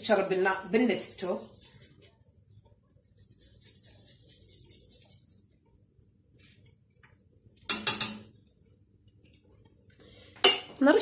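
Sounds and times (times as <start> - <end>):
metal pan clatter: 7.7 - 8.3, 10.4 - 10.8.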